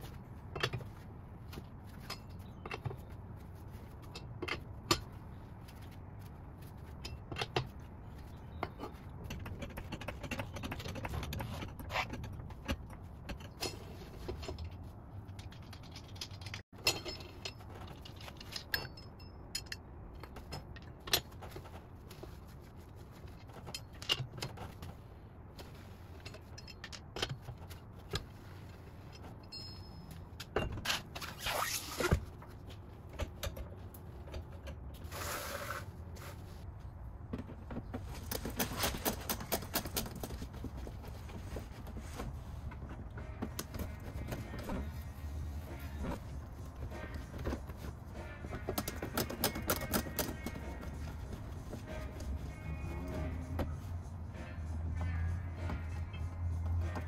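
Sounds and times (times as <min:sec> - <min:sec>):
lug wrench clinking on lug nuts: 0:15.4 - 0:21.6, 0:26.3 - 0:31.1.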